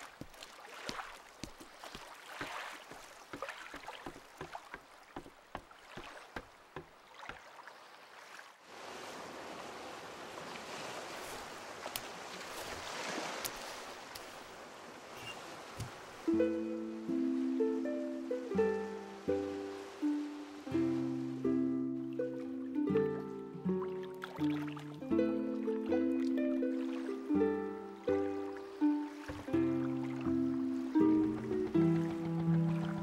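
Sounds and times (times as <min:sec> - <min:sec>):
water lapping against boat: 0:00.0 - 0:16.4, 0:23.2 - 0:25.0, 0:28.0 - 0:33.0.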